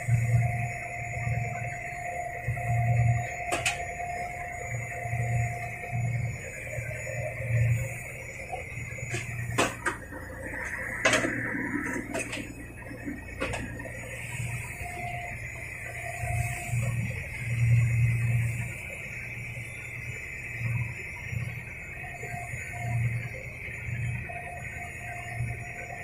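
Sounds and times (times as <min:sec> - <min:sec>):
boat engine humming and whining: 0:00.0 - 0:26.0.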